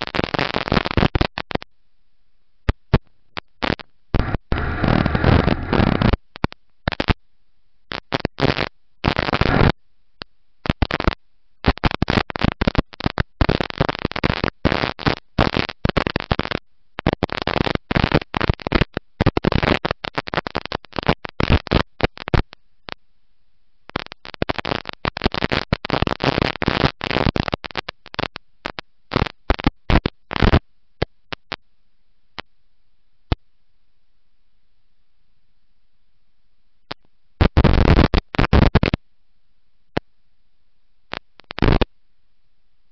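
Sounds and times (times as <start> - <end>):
distorted rushing noise: 4.2 - 6.1.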